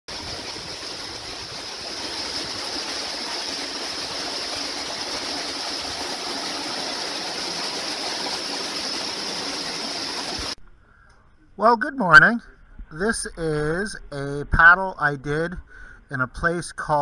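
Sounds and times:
water rushing through branches: 0.1s - 10.6s.

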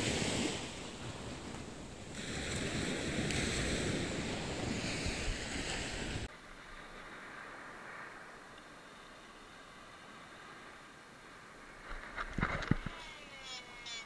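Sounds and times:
wind buffeting microphone: 0.0s - 6.3s
small waves washing ashore: 0.0s - 14.0s.

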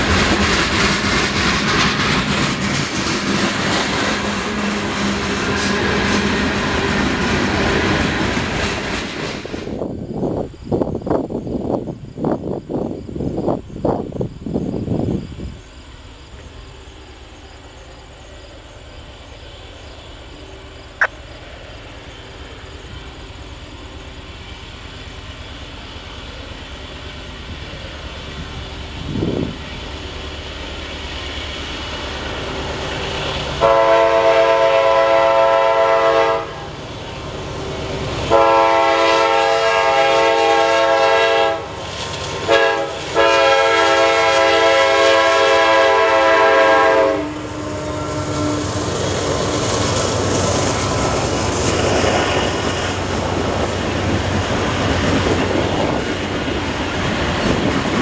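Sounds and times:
diesel train rumble: 0.0s - 58.0s
train air horn blasts: 33.6s - 36.7s, 38.2s - 41.7s, 42.4s - 49.0s.

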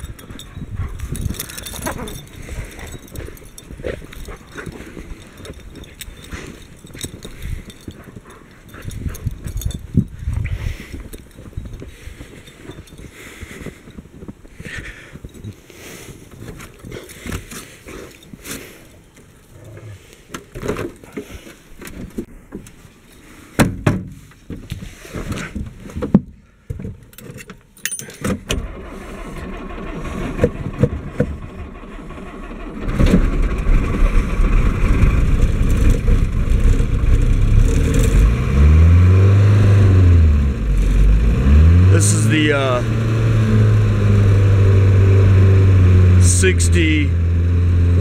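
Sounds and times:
diesel engine cranking and running: 0.0s - 14.0s, 28.3s - 48.0s
engine revving: 28.6s - 48.0s.

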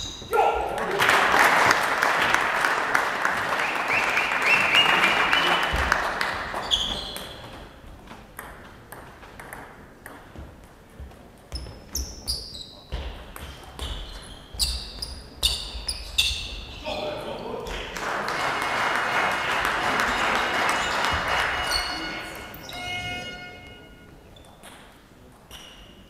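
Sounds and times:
spectators clapping and calling out: 0.4s - 7.4s, 17.7s - 22.7s
table tennis ball pinging: 8.1s - 10.6s.

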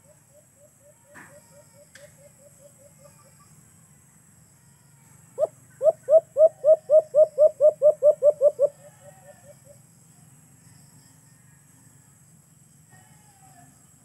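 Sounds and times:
bird hooting call: 5.4s - 9.8s.

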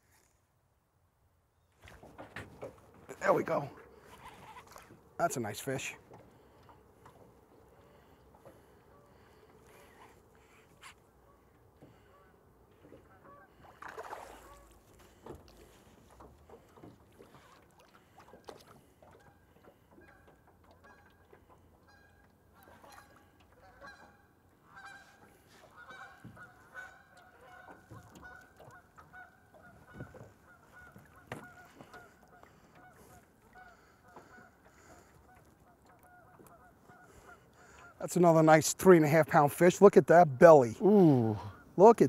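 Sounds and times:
water splashes: 1.8s - 11.0s, 12.8s - 21.9s, 24.8s - 42.0s
geese honking: 13.0s - 13.6s, 20.0s - 38.0s.

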